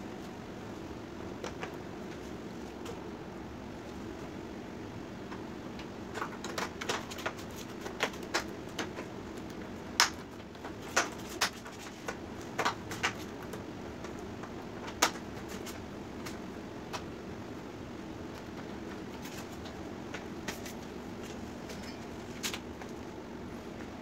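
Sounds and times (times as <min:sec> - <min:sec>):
plastic sheets crackling and clicking: 0:05.3 - 0:17.1.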